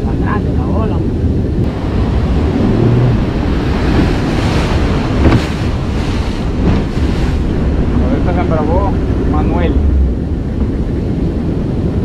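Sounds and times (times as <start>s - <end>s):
surf washing around boat: 0.0s - 12.0s
wind buffeting microphone: 0.0s - 12.0s
wave splashing on bow: 1.7s - 10.7s.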